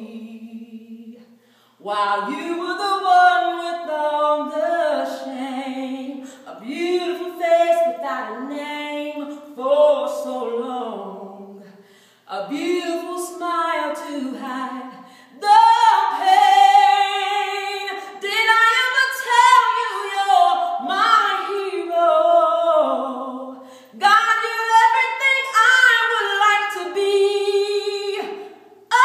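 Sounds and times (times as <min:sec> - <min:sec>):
woman singing a cappella: 0:00.0 - 0:29.0
singer breathing: 0:01.3 - 0:01.8, 0:11.6 - 0:12.3, 0:15.0 - 0:15.4, 0:23.6 - 0:24.0.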